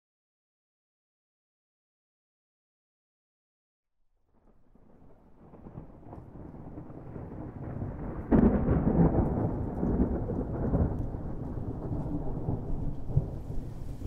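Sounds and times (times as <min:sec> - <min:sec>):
thunder rumbling and clapping: 0:04.4 - 0:14.0.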